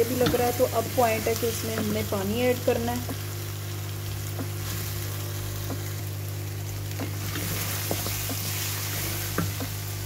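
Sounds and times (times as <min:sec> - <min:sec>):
food sizzling in oil in a pan: 0:00.0 - 0:10.0
wooden spoon scraping a pan: 0:06.9 - 0:10.0.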